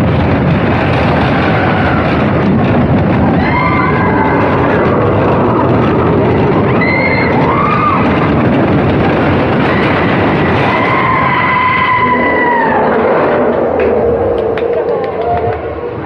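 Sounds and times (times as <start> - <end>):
roller coaster rumbling on track: 0.0 - 16.0
high tone rising and falling: 10.5 - 16.0.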